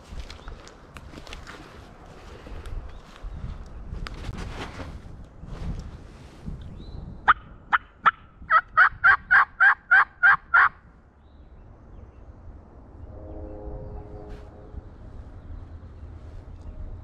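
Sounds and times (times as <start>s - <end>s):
turkey yelping: 7.3s - 10.7s.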